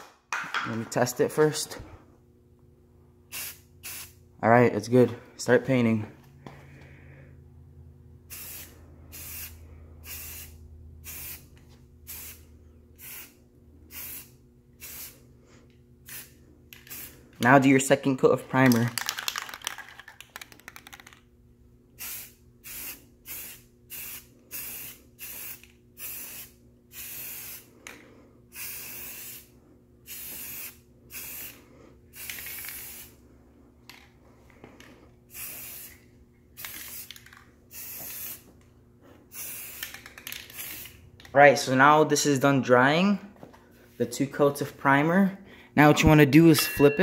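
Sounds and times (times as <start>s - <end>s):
aerosol spray can hissing: 30.1s - 33.2s, 35.3s - 36.0s, 36.6s - 38.5s, 39.3s - 41.0s.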